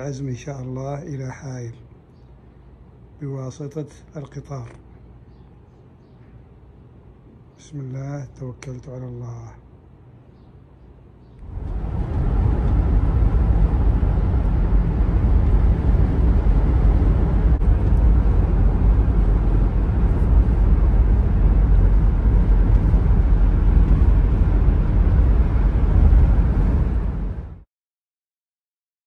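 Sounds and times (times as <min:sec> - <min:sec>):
moving vehicle rumble: 0:11.2 - 0:27.6.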